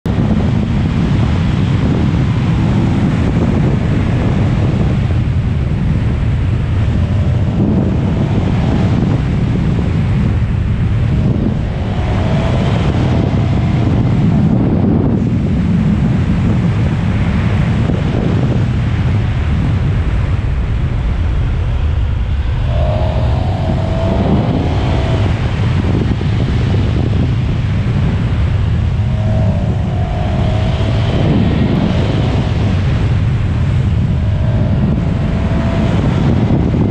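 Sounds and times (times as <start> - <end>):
wind rushing over microphone: 0.0 - 36.9.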